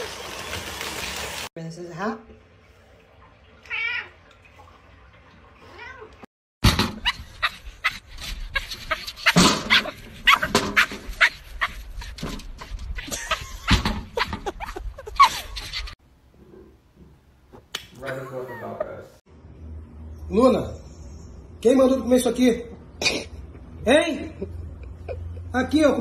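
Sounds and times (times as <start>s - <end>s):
knocks and clatters: 8.9s - 14.5s.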